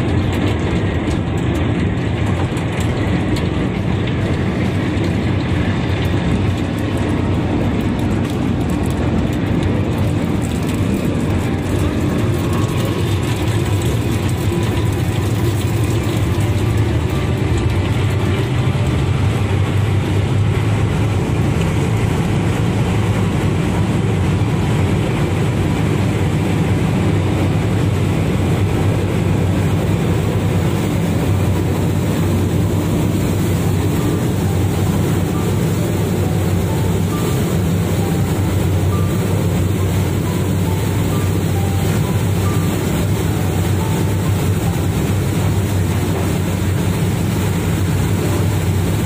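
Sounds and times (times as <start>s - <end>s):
boat engines running: 0.0s - 49.0s.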